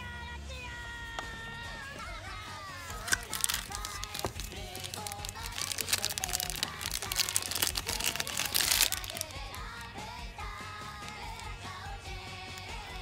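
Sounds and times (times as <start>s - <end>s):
background music with singing: 0.0s - 13.0s
plastic bag crinkling: 2.8s - 9.8s.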